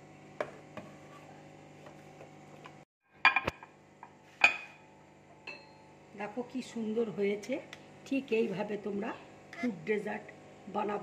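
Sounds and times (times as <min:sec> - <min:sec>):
glass bowl clinking on plate: 0:04.4 - 0:04.8, 0:05.4 - 0:05.8.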